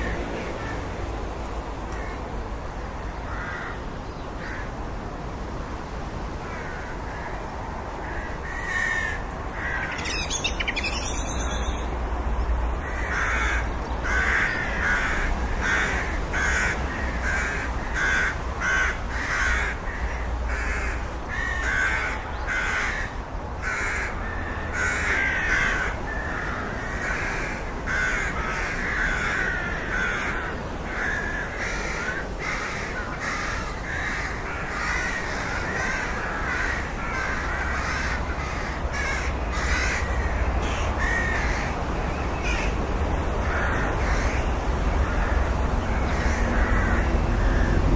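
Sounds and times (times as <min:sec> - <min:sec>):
rooks cawing: 0:00.4 - 0:01.0, 0:02.0 - 0:02.2, 0:03.1 - 0:04.8, 0:06.4 - 0:11.9, 0:12.8 - 0:42.8, 0:43.4 - 0:47.9.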